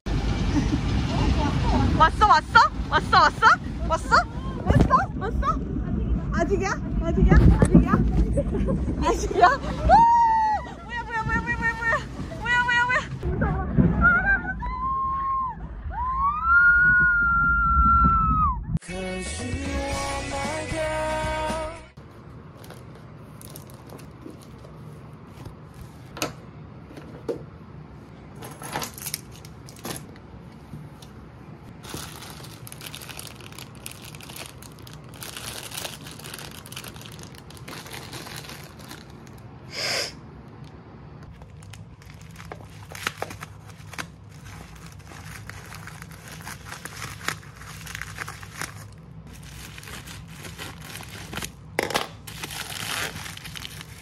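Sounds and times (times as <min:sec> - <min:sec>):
plastic crinkling: 0:22.5 - 0:24.8, 0:31.8 - 0:39.5, 0:41.2 - 0:54.0
plastic bag tearing open: 0:31.8 - 0:39.4, 0:41.3 - 0:54.0.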